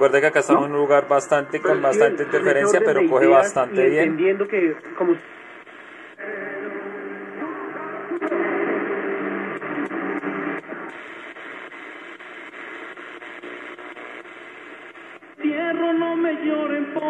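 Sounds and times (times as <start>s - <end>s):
radio broadcast voice: 0.0s - 6.1s
interference crackles: 0.0s - 17.0s
radio static hiss: 0.0s - 17.0s.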